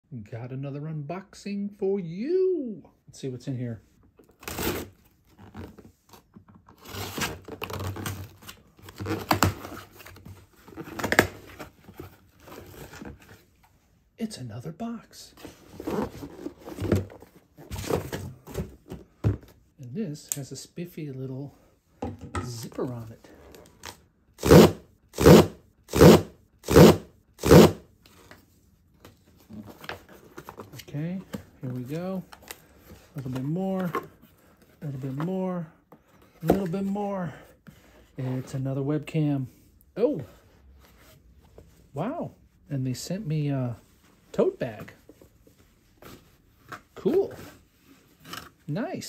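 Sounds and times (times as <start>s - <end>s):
cardboard flaps tearing and scraping: 4.3s - 13.3s
cardboard tear strip ripping: 4.4s - 5.0s, 24.4s - 27.8s
handling of box: 15.3s - 19.7s, 28.1s - 37.0s
knife slitting packing tape: 24.4s - 27.8s.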